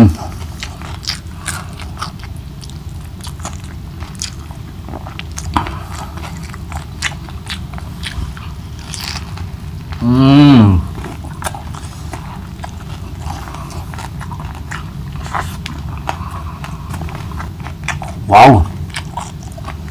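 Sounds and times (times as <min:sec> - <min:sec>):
chewing crispy fried fish: 0:00.0 - 0:19.9.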